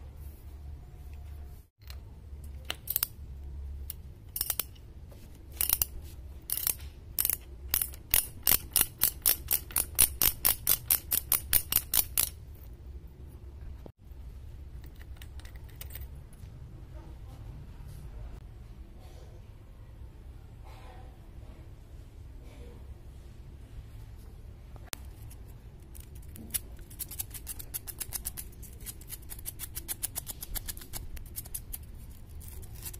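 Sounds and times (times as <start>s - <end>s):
ratchet wrench clicking: 4.3s - 4.8s, 5.6s - 5.9s, 6.5s - 12.4s.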